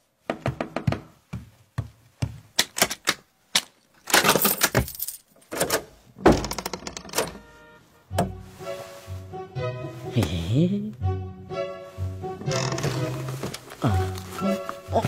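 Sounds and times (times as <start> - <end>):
door pulled open: 5.5 - 7.4, 12.4 - 13.7.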